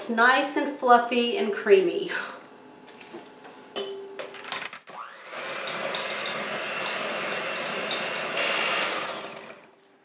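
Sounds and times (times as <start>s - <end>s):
electric hand mixer running: 4.6s - 9.8s.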